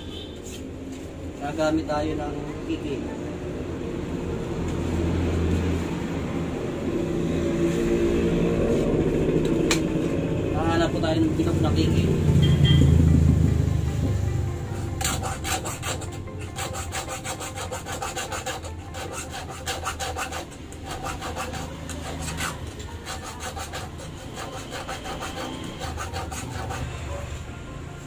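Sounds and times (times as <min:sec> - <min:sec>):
file scraping steel blade: 0:14.8 - 0:27.1.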